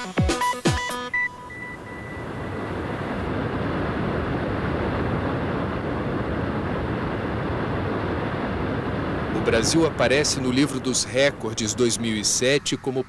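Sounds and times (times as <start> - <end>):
steady rushing roar: 1.4 - 13.0.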